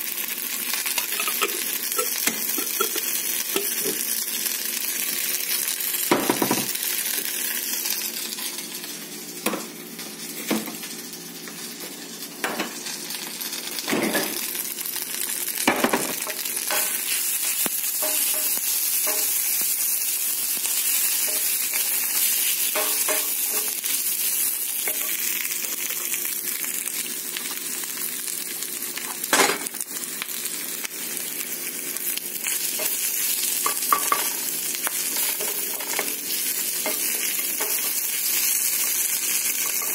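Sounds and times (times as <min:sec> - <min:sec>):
onions sizzling in a pan: 0:00.0 - 0:39.9
spatula knocking on pan: 0:18.0 - 0:19.3.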